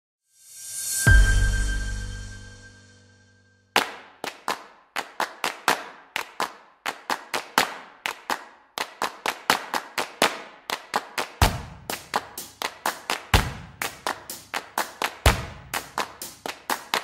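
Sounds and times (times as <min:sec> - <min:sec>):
percussive intro music: 0:11.3 - 0:17.0.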